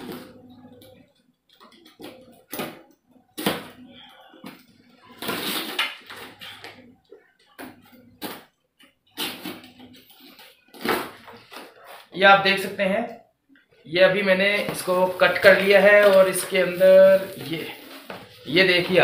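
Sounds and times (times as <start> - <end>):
cardboard rustling: 14.5 - 19.0.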